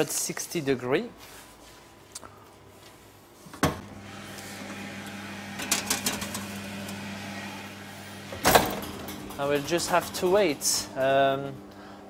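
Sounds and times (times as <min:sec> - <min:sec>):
oven fan humming: 0:03.6 - 0:12.0
oven door clunk: 0:08.2 - 0:10.5.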